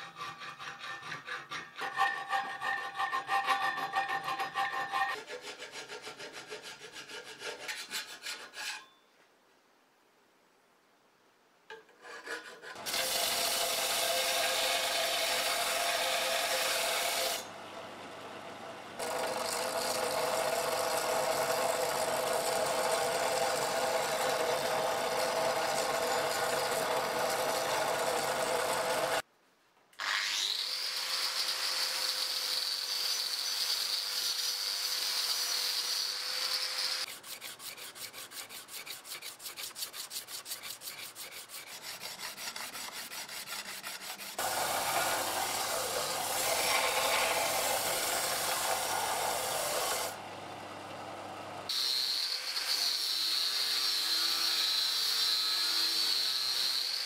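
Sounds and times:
sanding block rubbing on blade: 0.0 - 8.9, 31.3 - 50.1
belt sander grinding blade: 19.0 - 29.2, 30.0 - 50.2
power tool whine: 44.4 - 50.3, 51.6 - 57.0.

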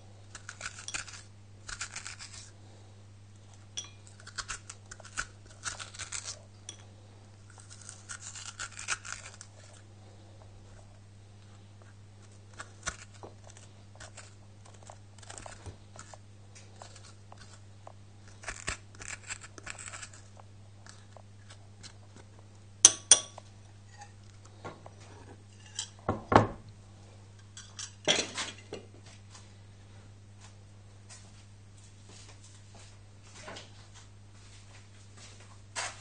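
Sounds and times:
low steady hum: 0.0 - 36.0
metal spoon scraping squash: 0.3 - 2.5, 3.8 - 6.8, 7.5 - 9.8, 12.2 - 16.2, 16.8 - 17.6, 18.2 - 22.2, 22.8 - 24.4, 25.1 - 26.0
spoon clinking on glass bowl: 3.8 - 4.1, 22.9 - 24.1.

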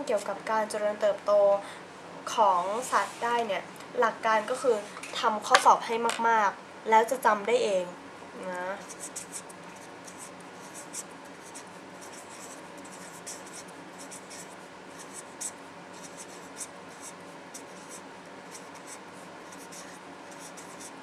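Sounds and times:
low room hum: 0.0 - 21.0
pen scratching on paper: 8.8 - 21.0.

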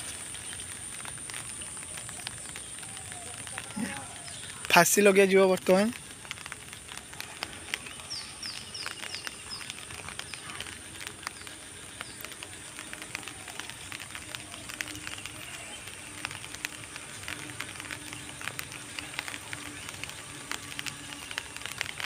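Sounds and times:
light clicks and crackles: 0.0 - 22.0
bird chirping: 6.4 - 21.8.

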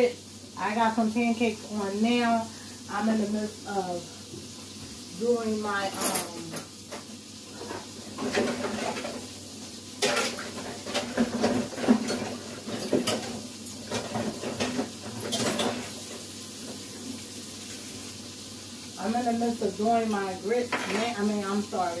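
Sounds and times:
dishes and utensils clinking: 5.8 - 9.2, 10.0 - 16.0.

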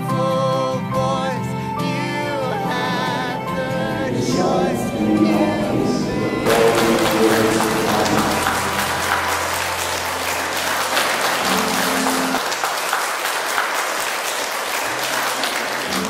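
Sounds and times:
crowd applauding: 3.5 - 16.0.

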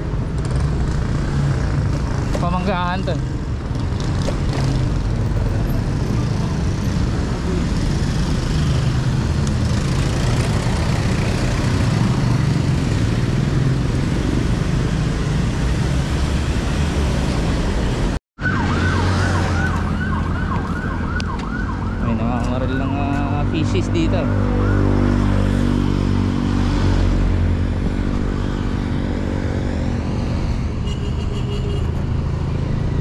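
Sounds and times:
city traffic noise: 0.0 - 33.0
siren yelping: 18.4 - 23.1.

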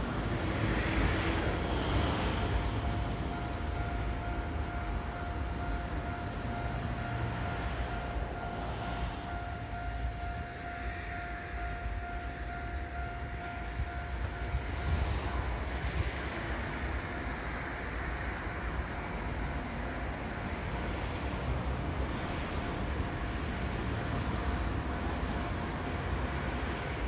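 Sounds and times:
faint steady tone: 0.0 - 27.0
wind rumble on microphone: 13.6 - 17.6.

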